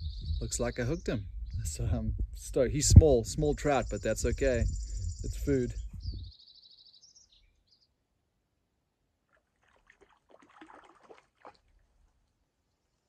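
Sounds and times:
rustling and light splashing: 9.3s - 12.4s.

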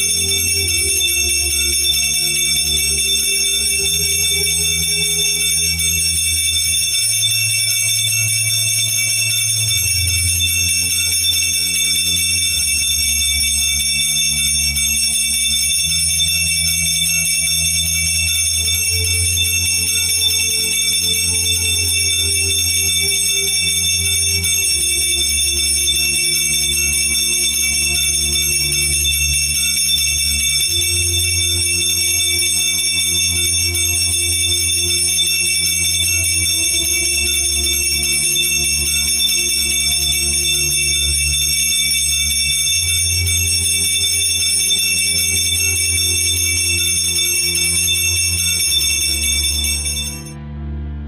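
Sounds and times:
altar bells ringing: 0.0s - 50.4s
low sustained music chords: 50.2s - 51.0s.

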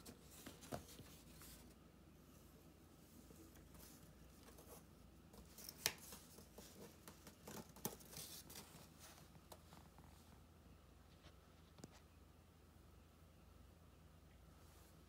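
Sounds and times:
cardboard rustling and scraping: 0.0s - 1.8s, 3.2s - 10.0s.

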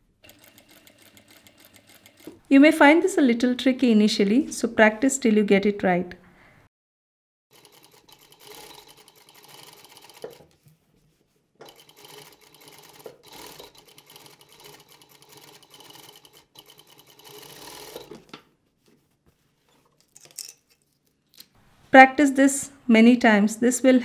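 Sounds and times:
sewing machine stitching: 0.2s - 2.4s, 7.5s - 10.6s, 11.6s - 18.3s.

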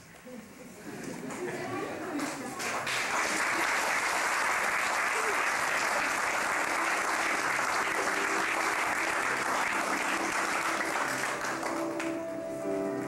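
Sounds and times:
guests applauding: 2.1s - 12.4s.

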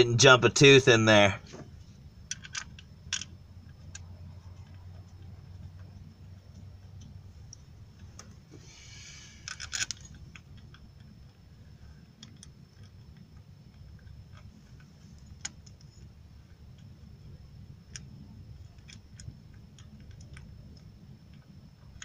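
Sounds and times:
low rumble: 1.4s - 8.5s
metal chain clicks and rattles: 2.3s - 3.3s.

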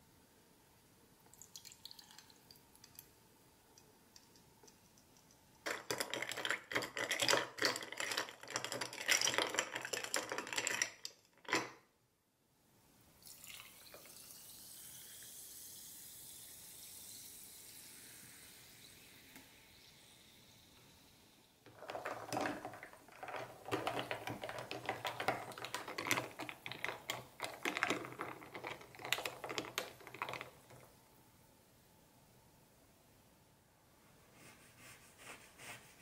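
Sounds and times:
soda fizzing: 13.2s - 22.9s.

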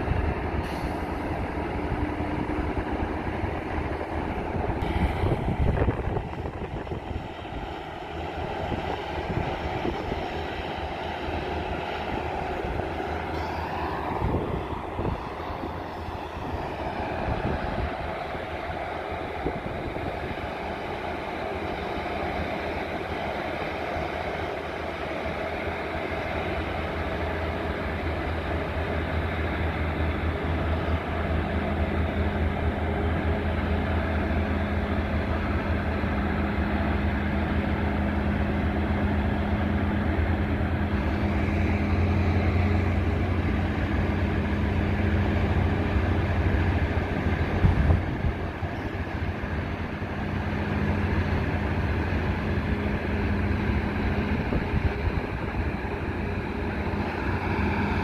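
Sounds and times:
locomotive engine hum: 0.0s - 58.0s.

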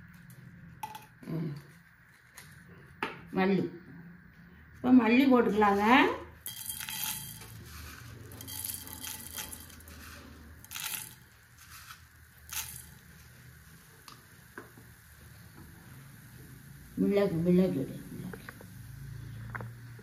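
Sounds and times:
seeds rustling and scraping in pan: 5.4s - 16.2s.

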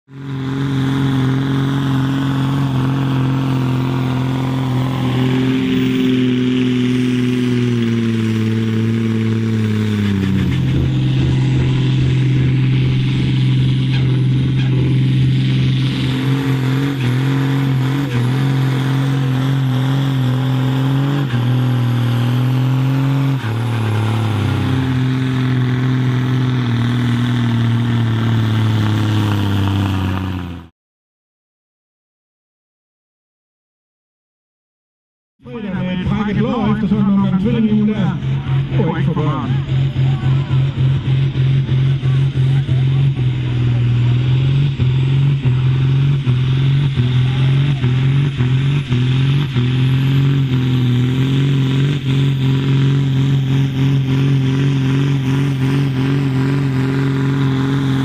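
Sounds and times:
tractor diesel engines straining: 0.1s - 30.7s, 35.5s - 58.0s.

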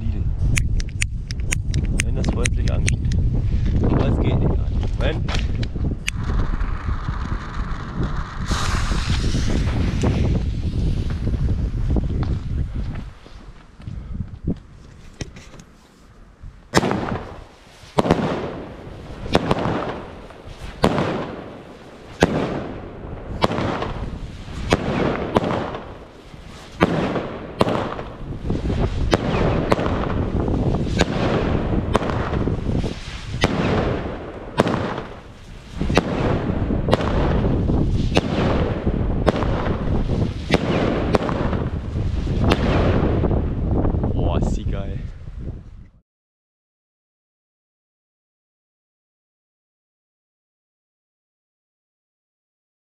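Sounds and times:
firework shots cracking and hissing: 0.5s - 13.8s, 16.7s - 44.0s
firework fizzing: 6.2s - 13.3s, 16.7s - 43.1s.

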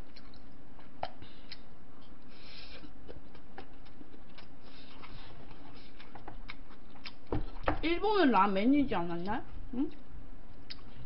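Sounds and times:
chewing noodles: 0.0s - 7.6s
steady low hum: 0.0s - 11.0s.

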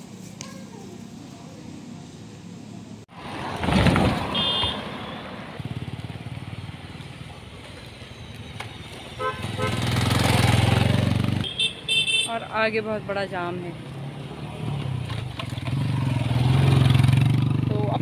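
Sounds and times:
vehicle engine: 0.0s - 11.9s, 12.5s - 18.0s
vehicles passing: 0.0s - 18.0s
car horn toots: 4.3s - 5.2s, 9.1s - 9.9s, 11.4s - 12.4s.

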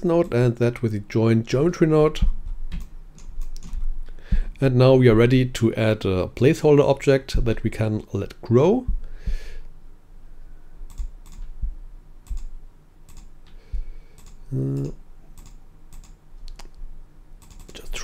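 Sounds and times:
keyboard and mouse clicks: 2.2s - 3.8s, 10.9s - 11.6s, 12.2s - 12.5s, 14.2s - 16.8s, 17.4s - 17.8s
man humming: 14.5s - 15.0s.

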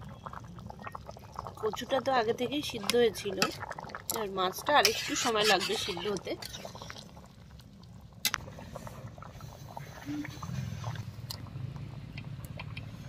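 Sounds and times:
metal spatula scraping pan: 4.7s - 6.7s
low steady rumble: 6.2s - 13.0s.

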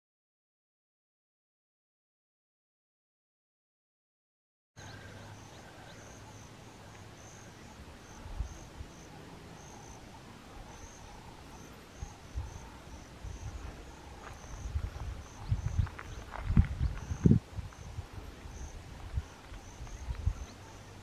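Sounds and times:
insects chirping: 4.8s - 21.0s.

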